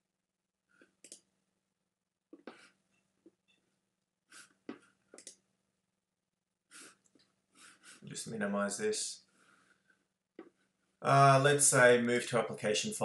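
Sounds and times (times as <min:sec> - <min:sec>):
soft clicks: 0:00.9 - 0:01.3, 0:04.7 - 0:05.4
soft breaths: 0:04.3 - 0:05.1, 0:06.7 - 0:08.3, 0:09.2 - 0:11.0.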